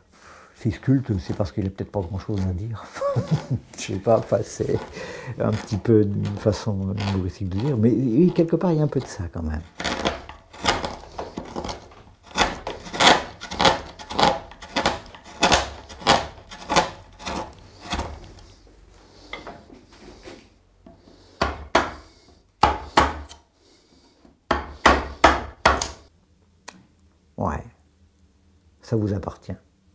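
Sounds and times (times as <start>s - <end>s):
gouge cutting wood: 2.2s - 18.5s
wooden mallet knocking: 21.4s - 22.0s, 24.5s - 26.0s.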